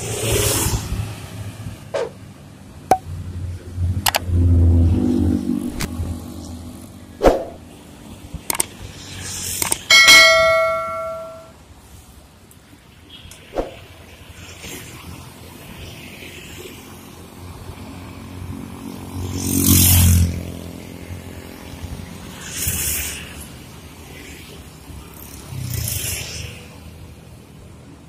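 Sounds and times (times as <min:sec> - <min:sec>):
bus or truck engine rumbling: 0:00.0 - 0:11.5
passing road traffic: 0:00.0 - 0:28.0
sharp clicks: 0:08.5 - 0:08.7, 0:09.6 - 0:09.9
notification bell ding: 0:09.9 - 0:11.5.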